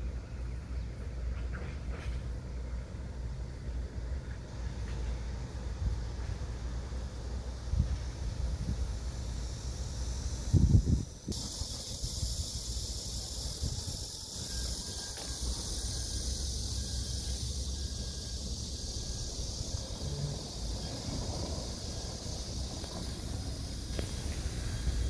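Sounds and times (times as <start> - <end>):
cicadas buzzing: 0.0 - 25.0
wind rumbling on microphone: 7.5 - 15.0.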